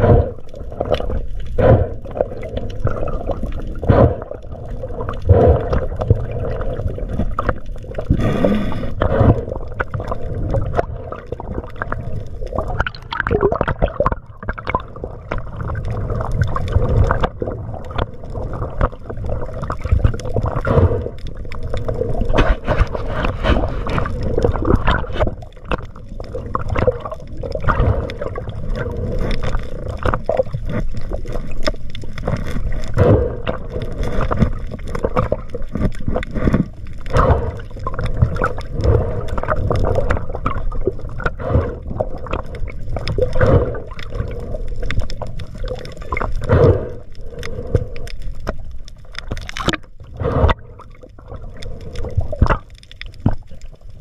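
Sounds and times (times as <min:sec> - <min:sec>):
underwater water rushing: 0:00.0 - 0:54.0
small clicks and crackles: 0:00.3 - 0:54.0.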